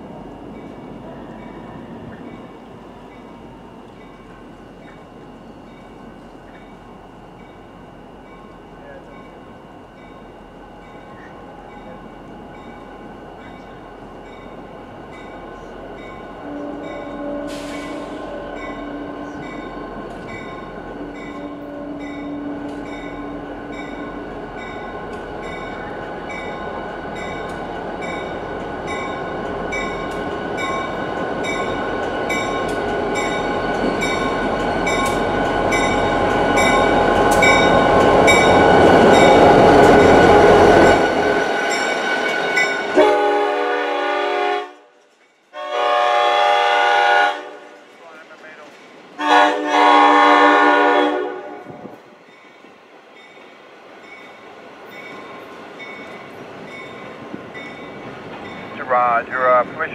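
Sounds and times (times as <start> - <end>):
locomotive engine and rolling train: 0.0 - 59.9
train horn: 16.2 - 19.8, 20.9 - 23.6, 42.8 - 45.0, 45.6 - 47.8, 49.2 - 51.9.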